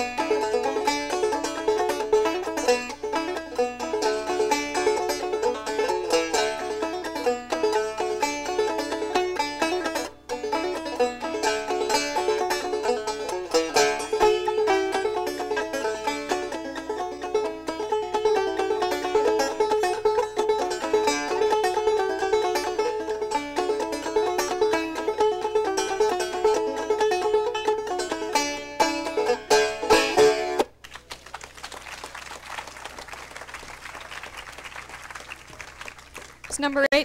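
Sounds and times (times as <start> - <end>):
banjo picking fast tune: 0.0 - 30.8
audience applause: 30.8 - 36.9.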